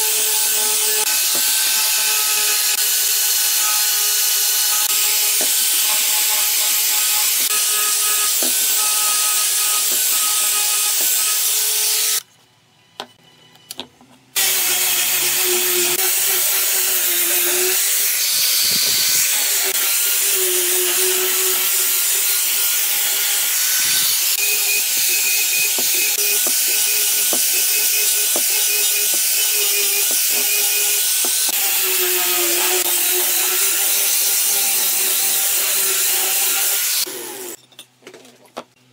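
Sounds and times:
angle grinder motor whine: 14.4 - 37.6.

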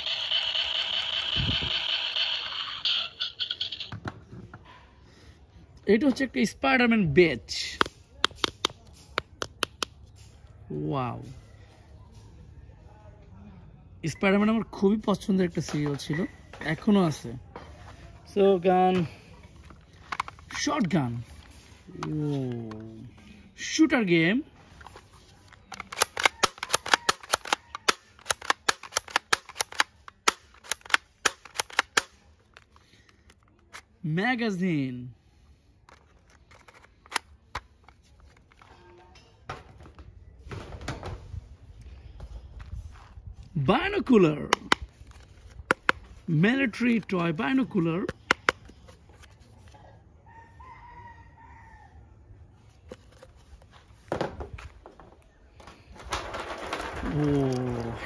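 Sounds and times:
toy shotgun plastic clicks: 25.7 - 32.2.

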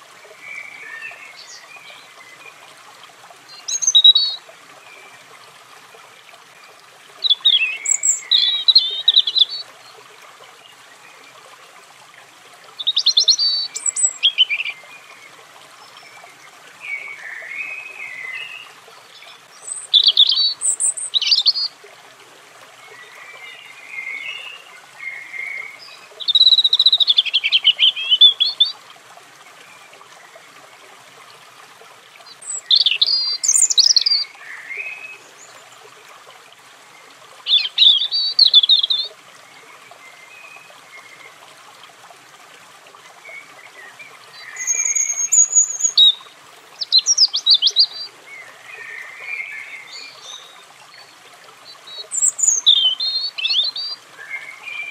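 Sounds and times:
faint steady hiss: 0.0 - 54.9
robin singing: 3.5 - 4.4, 7.2 - 9.7, 12.8 - 15.2, 16.8 - 21.8, 22.9 - 28.8, 32.3 - 35.6, 37.4 - 39.1, 43.3 - 51.0, 51.7 - 54.9.

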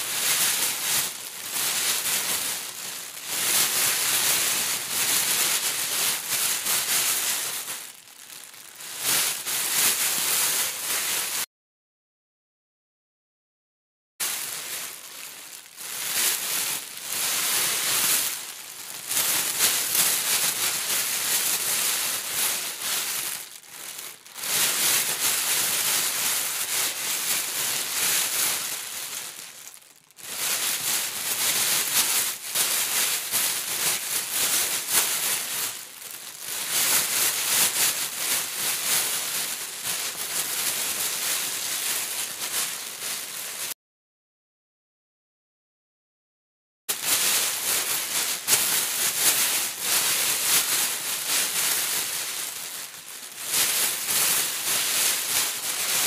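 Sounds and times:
hands rustling through foam beads: 0.0 - 11.4, 14.2 - 25.5, 26.4 - 38.8, 39.5 - 43.7, 46.9 - 54.1
plastic wrapper crinkling: 7.6 - 9.2, 14.2 - 25.5, 27.8 - 37.5, 39.3 - 43.7, 46.9 - 50.1, 51.2 - 54.1.

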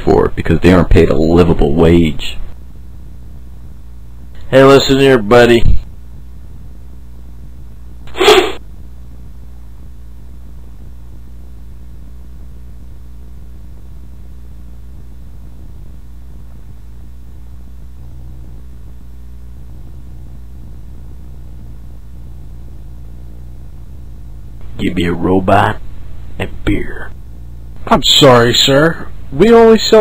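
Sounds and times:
truck engine droning: 0.0 - 30.0
loud short burst: 8.1 - 8.6.

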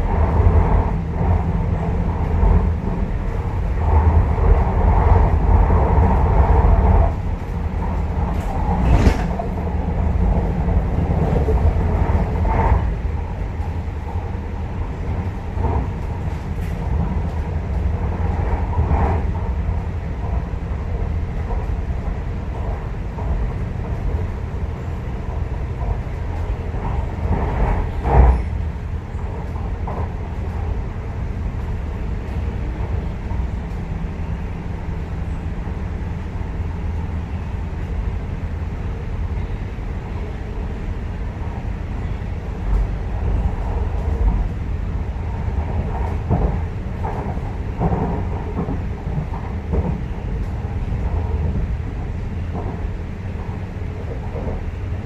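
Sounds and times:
train rumbling inside car: 0.0 - 55.0
loud thump: 8.8 - 9.6.

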